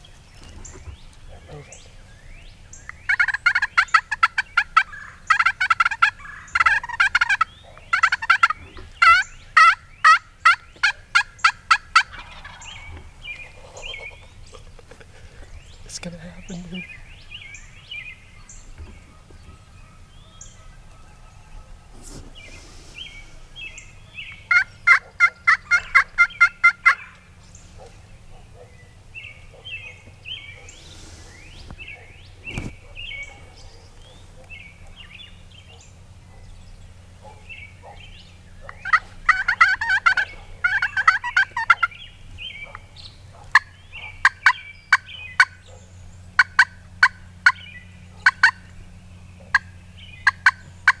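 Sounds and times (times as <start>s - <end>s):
songbird chirps: 0.0s - 51.0s
wild turkeys calling: 0.0s - 51.0s.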